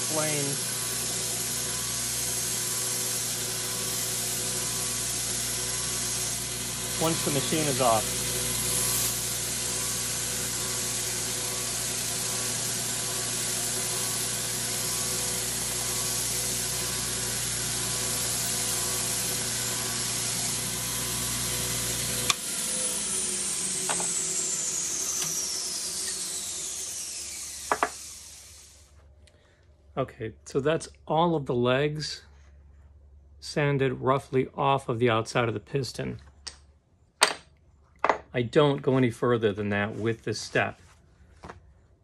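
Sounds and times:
belt sander grinding metal: 0.0s - 28.8s
motor whine winding down: 0.0s - 29.0s.

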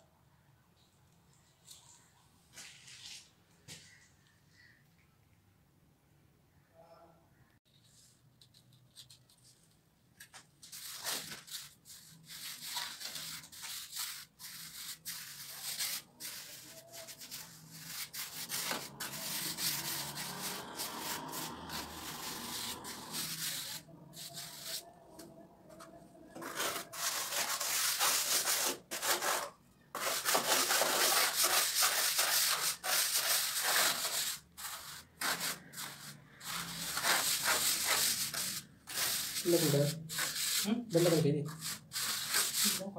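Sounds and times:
trowel scraping wet plaster: 10.8s - 24.8s, 26.3s - 42.9s.

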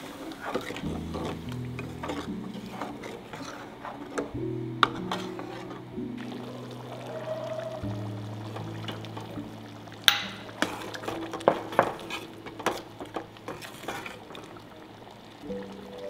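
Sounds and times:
soft background music: 0.0s - 16.0s
metal ladle stirring curry: 0.2s - 6.4s, 10.2s - 14.7s
ladle knocking metal pot: 10.0s - 14.1s.

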